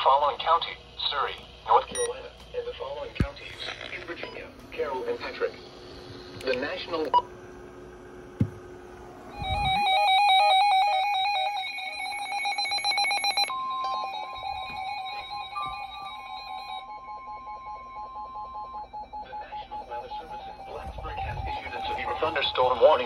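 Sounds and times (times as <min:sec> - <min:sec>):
steady high alarm tone: 0:09.3 - 0:23.0
warbling electronic alarm: 0:09.3 - 0:23.0.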